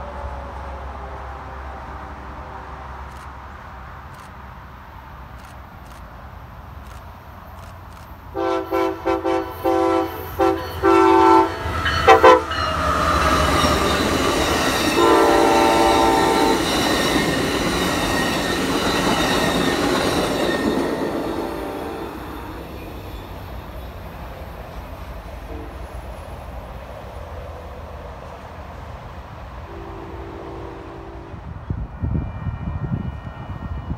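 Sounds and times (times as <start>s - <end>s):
train wheels rumbling on rails: 4.0s - 33.9s
train air horn blasts: 8.3s - 16.9s, 20.9s - 22.7s, 25.5s - 26.0s, 29.7s - 33.9s.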